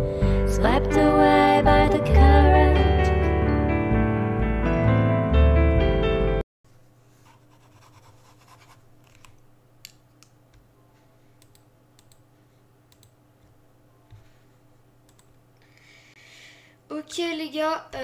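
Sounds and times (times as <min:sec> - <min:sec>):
pen scratching on paper: 0:07.2 - 0:08.8.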